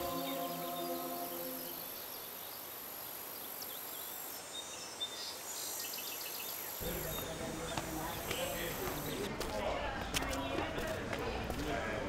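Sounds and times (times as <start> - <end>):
held musical chord: 0.0 - 2.0
faint village ambience: 0.0 - 12.0.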